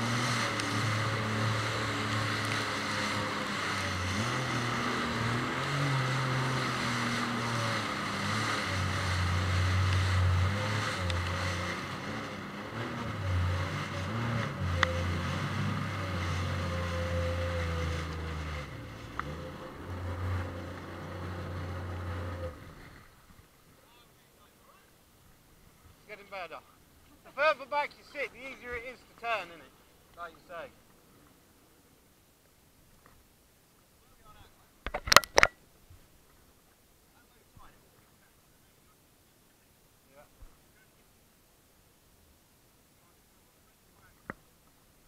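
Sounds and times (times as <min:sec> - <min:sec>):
jet ski engine: 0:00.0 - 0:32.1, 0:34.0 - 0:35.6.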